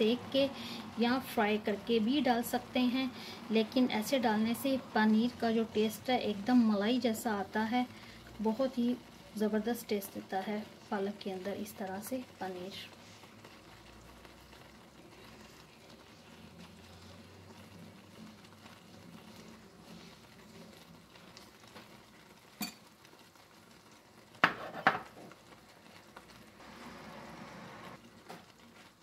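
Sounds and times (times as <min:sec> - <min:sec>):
puree cooking in frying pan: 0:00.0 - 0:29.0.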